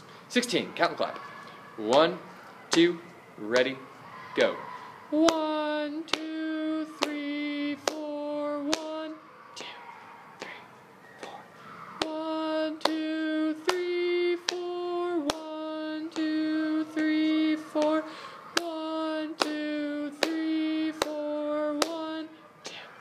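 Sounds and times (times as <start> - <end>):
man chanting a count: 1.8 - 11.4, 12.0 - 23.0
hand claps: 3.5 - 3.8, 5.2 - 5.5, 6.1 - 6.4, 7.0 - 7.2, 7.8 - 9.0, 11.2 - 11.4, 12.8 - 16.3, 17.8 - 22.8.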